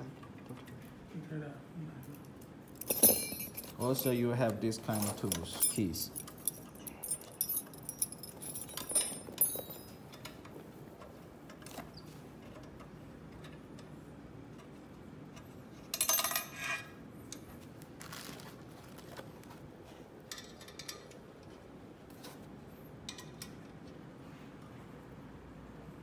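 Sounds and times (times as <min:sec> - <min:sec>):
metal keys and screws jingling: 0:02.1 - 0:10.4, 0:15.9 - 0:16.8
metal keys clattering down: 0:02.7 - 0:04.2, 0:04.9 - 0:10.3, 0:15.9 - 0:16.8.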